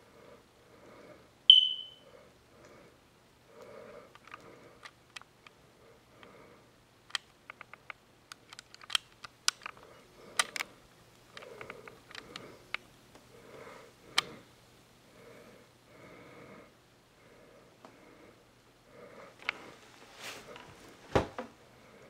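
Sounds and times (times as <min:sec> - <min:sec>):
soft breaths through the nose: 0:00.0 - 0:01.4, 0:02.0 - 0:06.8, 0:09.7 - 0:21.0
camera handling clicks and crackles: 0:07.1 - 0:09.8, 0:10.4 - 0:10.7.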